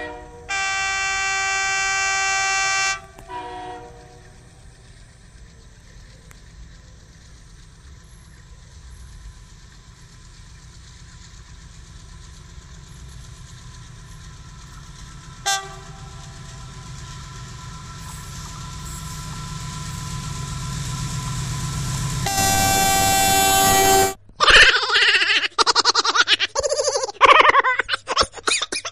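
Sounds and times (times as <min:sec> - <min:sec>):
train horn blasts: 0:00.0 - 0:05.0, 0:15.0 - 0:19.4, 0:22.2 - 0:24.2
locomotive engine rumble: 0:00.0 - 0:24.4.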